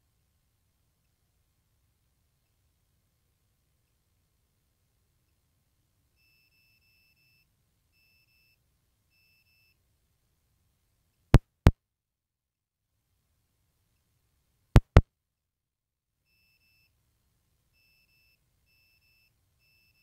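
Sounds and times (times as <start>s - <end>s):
sharp double clicks: 14.8s - 15.0s.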